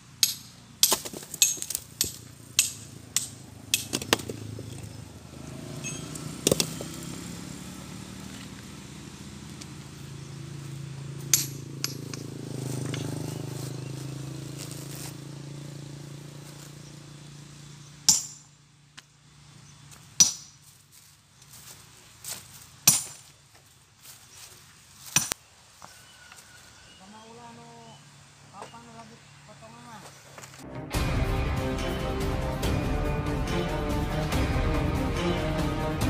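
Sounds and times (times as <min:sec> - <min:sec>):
vehicle engine running: 0:00.0 - 0:22.7, 0:30.4 - 0:36.0
stone knocking on stone: 0:06.4 - 0:07.0.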